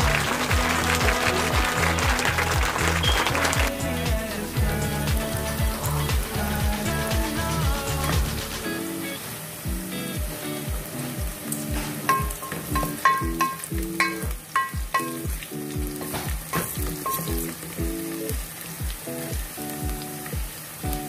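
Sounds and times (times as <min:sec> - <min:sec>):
background music with steady beat: 0:00.0 - 0:21.0
onions sizzling in oil: 0:03.8 - 0:21.0
wooden spoon knocking on pot: 0:12.1 - 0:15.2.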